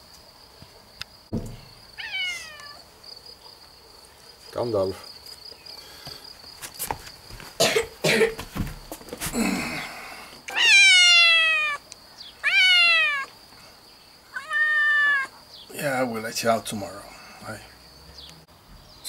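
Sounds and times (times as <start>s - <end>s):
cat meowing: 2.0s - 2.8s, 10.5s - 11.8s, 12.4s - 13.3s, 14.3s - 15.3s.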